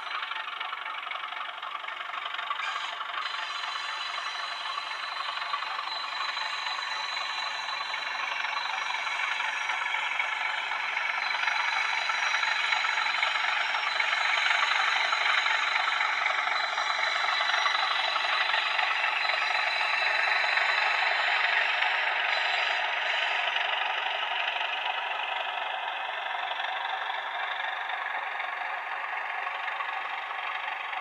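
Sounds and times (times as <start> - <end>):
model train running on track: 0.0 - 31.0
thin high whine: 2.6 - 24.8.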